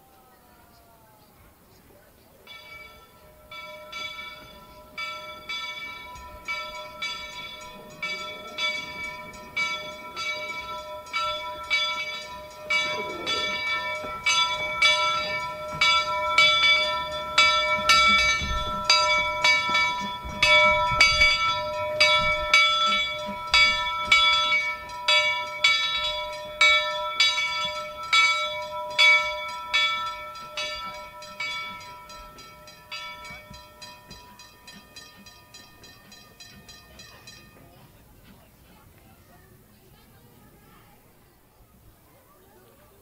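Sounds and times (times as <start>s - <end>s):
locomotive bell ringing: 2.4s - 39.0s.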